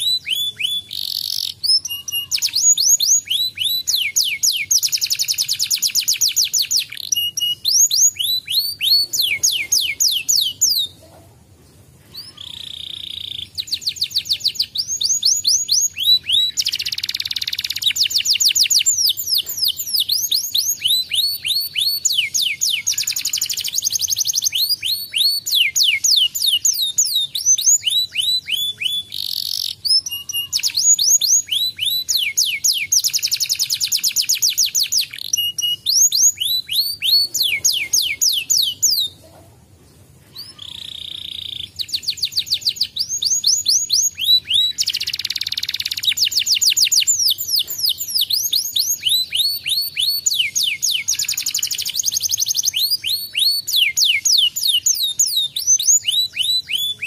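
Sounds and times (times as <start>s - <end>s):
canary singing fast trills: 0.0s - 39.2s, 40.3s - 57.0s.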